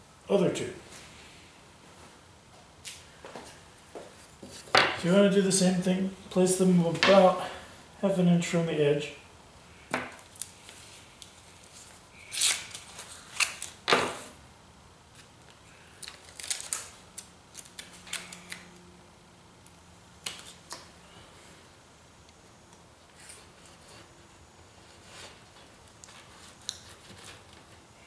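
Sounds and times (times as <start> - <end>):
foil tape crinkling: 10.2 - 13.9, 15.1 - 18.7.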